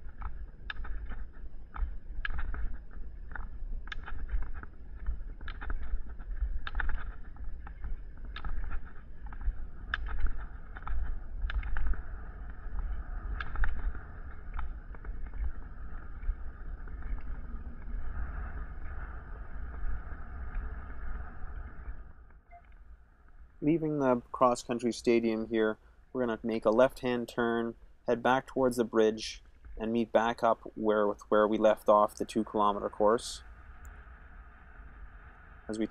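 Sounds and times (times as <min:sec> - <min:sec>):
pole tips clicking on pavement: 0:00.0 - 0:17.4
wheels rolling on asphalt: 0:00.0 - 0:24.4
wind rumble on microphone: 0:00.0 - 0:35.9.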